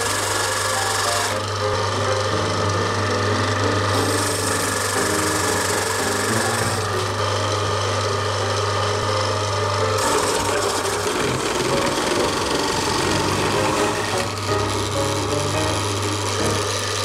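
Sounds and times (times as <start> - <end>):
electric grater motor hum: 0.0 - 17.0
wet rasping grind: 10.0 - 14.7.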